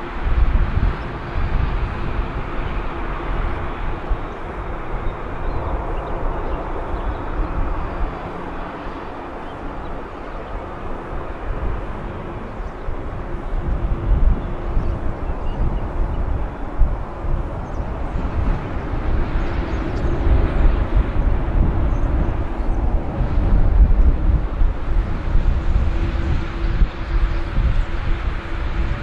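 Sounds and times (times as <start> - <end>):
jet engines running at low power: 0.0 - 29.0.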